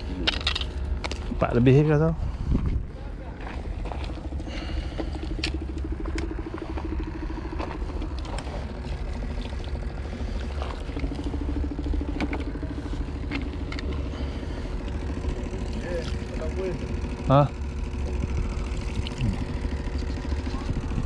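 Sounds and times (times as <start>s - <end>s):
scattered clicks and knocks: 0.0s - 1.4s
low rumble: 0.0s - 21.0s
small engine running: 0.0s - 21.0s.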